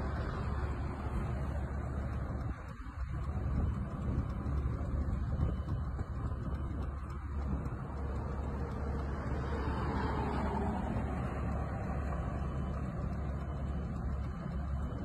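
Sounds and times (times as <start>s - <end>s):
broad noise: 0.0s - 15.0s
vehicle engines rumbling: 0.0s - 15.0s.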